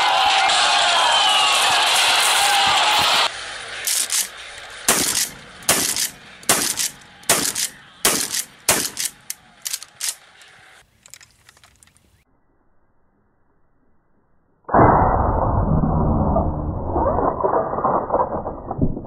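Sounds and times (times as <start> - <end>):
shotgun slide clacking: 3.8 - 12.0
shotgun shots: 4.9 - 9.4.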